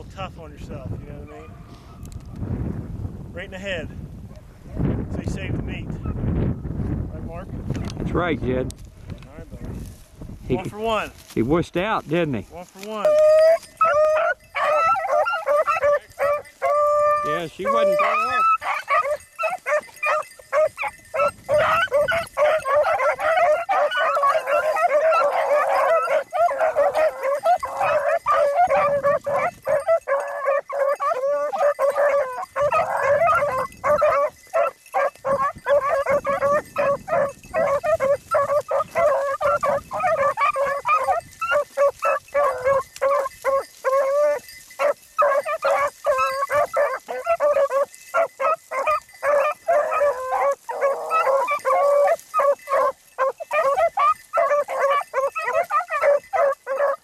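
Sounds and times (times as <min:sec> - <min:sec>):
beagles baying and yipping: 0:12.6 - 0:57.0.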